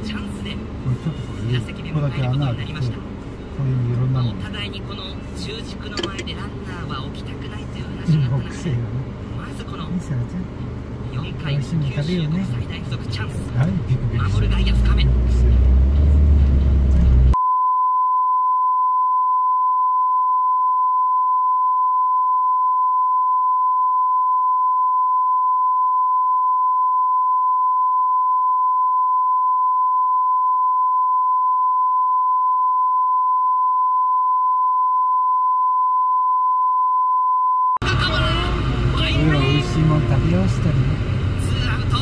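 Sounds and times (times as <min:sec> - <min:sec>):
censor bleep tone: 0:17.3 - 0:37.8.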